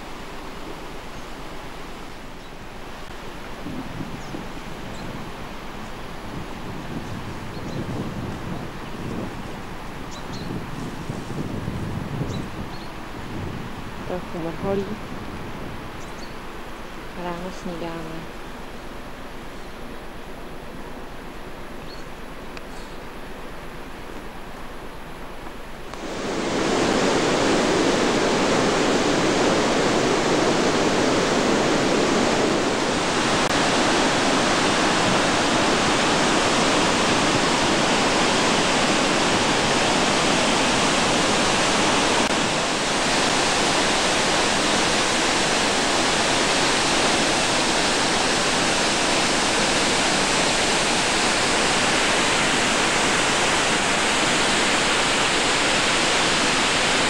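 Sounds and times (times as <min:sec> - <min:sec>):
waterfall rushing: 0:25.6 - 0:57.0.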